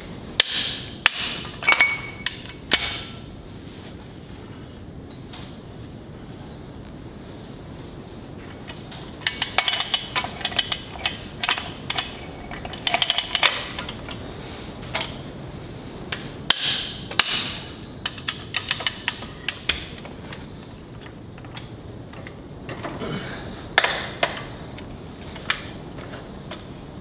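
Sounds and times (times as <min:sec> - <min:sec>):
ratchet wrench clicking: 0:18.0 - 0:19.8.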